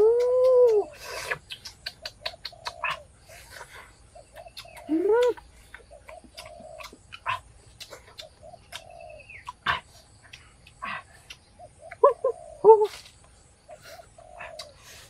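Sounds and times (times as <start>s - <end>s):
animal calls: 0.0s - 10.0s, 13.7s - 15.0s.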